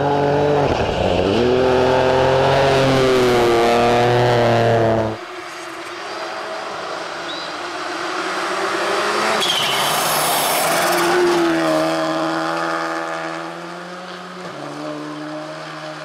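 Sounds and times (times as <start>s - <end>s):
rally car engine at full throttle: 0.0s - 16.0s.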